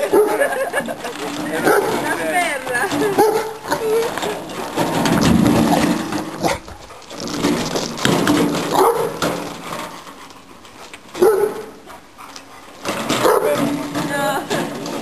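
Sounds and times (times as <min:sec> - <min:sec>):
dog barking: 0:00.0 - 0:00.5, 0:08.7 - 0:09.2, 0:11.2 - 0:11.8, 0:13.2 - 0:13.6
wheelbarrow dragged over gravel: 0:00.0 - 0:15.0.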